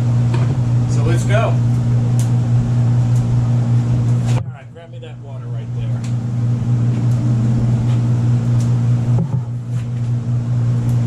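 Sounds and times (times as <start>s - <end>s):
machine humming: 0.0s - 11.0s.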